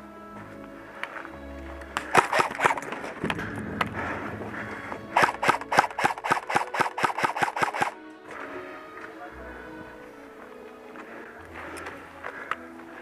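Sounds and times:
airsoft rifle shots: 2.1s - 3.0s, 5.1s - 8.0s.

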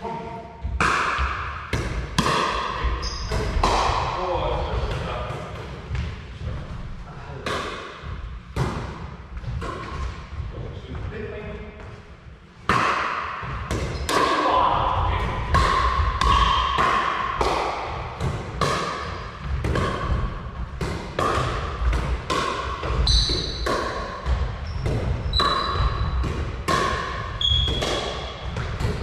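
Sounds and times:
paddles hitting plastic ball: 15.3s - 29.0s
shoes squeaking on wooden floor: 24.6s - 26.1s, 27.4s - 28.4s.

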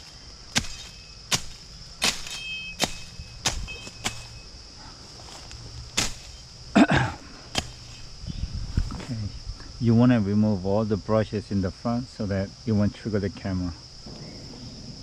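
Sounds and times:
machete chopping brush: 0.0s - 4.5s, 5.2s - 8.1s
crickets chirping: 0.0s - 15.0s.

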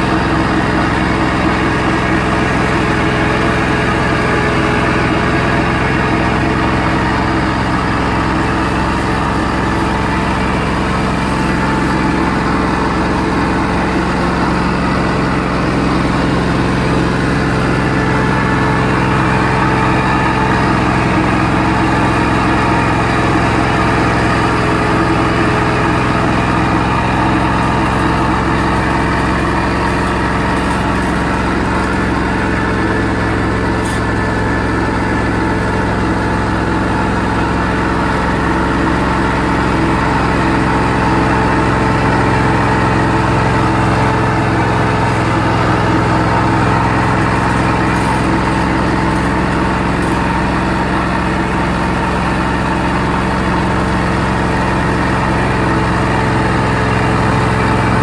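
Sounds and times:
sawmill engine running: 0.0s - 58.0s.

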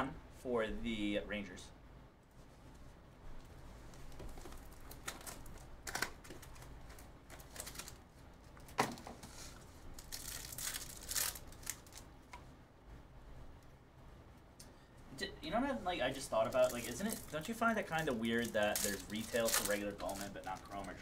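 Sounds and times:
foil packs crinkling and tearing: 4.1s - 8.1s, 9.2s - 12.1s, 16.0s - 21.0s.

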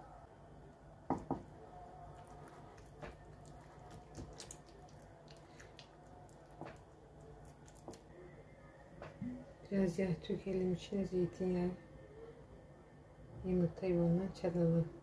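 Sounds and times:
faint steady hum: 0.0s - 15.0s
wet squishing of egg yolk: 2.1s - 8.1s.

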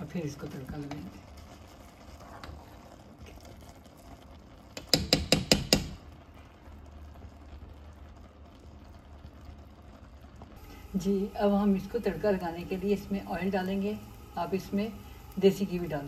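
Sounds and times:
metal spoon knocking on pan: 4.8s - 6.0s.

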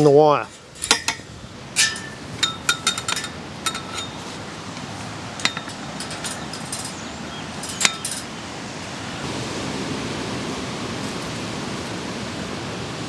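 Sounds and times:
steady hiss: 0.0s - 13.0s
metal clinking on fence wire: 0.5s - 8.4s.

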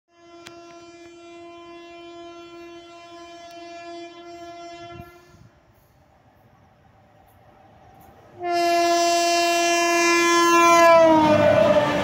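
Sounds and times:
train horn blast: 0.1s - 5.5s, 8.4s - 12.0s.

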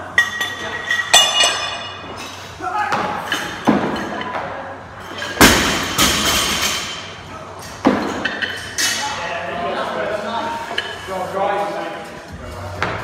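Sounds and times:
bar and plates ringing: 0.2s - 2.1s.

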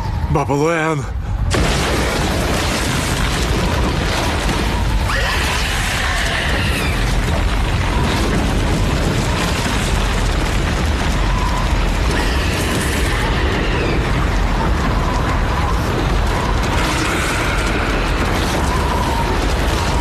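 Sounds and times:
deep rumbling roar: 1.5s - 20.0s.

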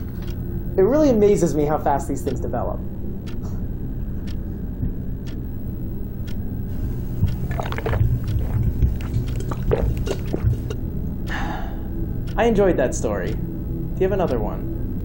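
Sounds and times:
steady low hum: 0.0s - 15.0s
man gulping water: 6.7s - 10.8s.

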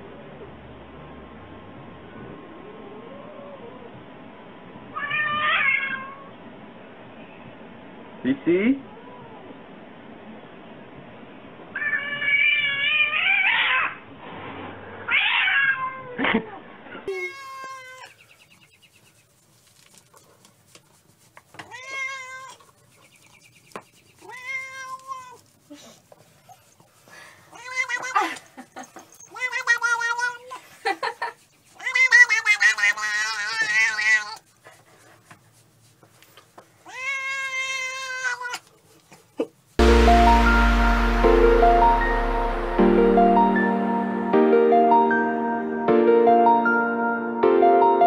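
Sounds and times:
cats meowing: 11.8s - 14.0s, 15.1s - 16.2s, 17.1s - 18.2s, 21.6s - 22.8s, 24.2s - 25.5s, 27.5s - 30.6s, 31.8s - 34.5s, 36.8s - 38.7s.

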